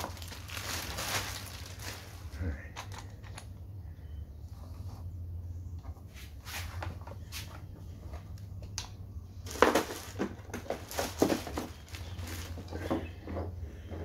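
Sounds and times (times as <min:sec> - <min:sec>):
plastic wrapping crinkling: 0:00.0 - 0:02.3, 0:09.4 - 0:12.9
low steady hum: 0:00.0 - 0:14.0.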